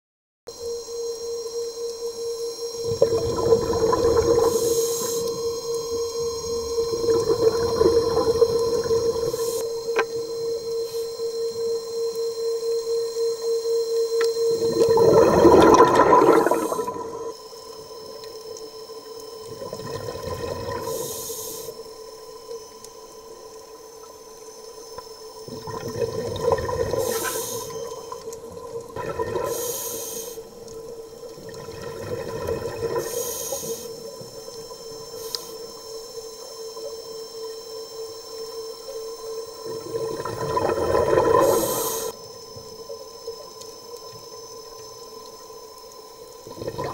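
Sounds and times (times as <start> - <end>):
underwater motor whine: 0.5 - 46.9
diver bubbles gurgling: 2.8 - 10.4, 14.4 - 17.4, 19.4 - 21.7, 25.4 - 29.9, 30.5 - 35.1, 39.4 - 42.2, 46.4 - 46.9.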